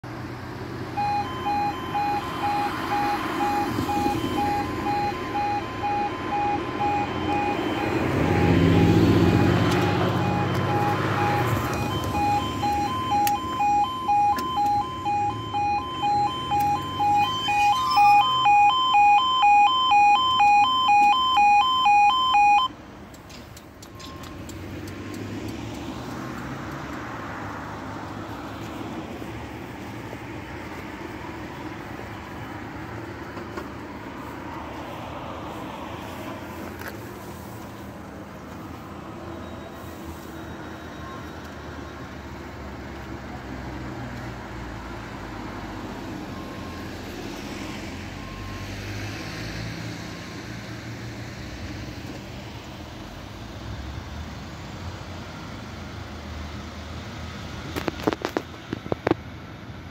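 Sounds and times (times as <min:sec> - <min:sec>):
road vehicle passing: 0:00.0 - 0:58.1
level crossing alarm pulsing tone: 0:01.0 - 0:22.8.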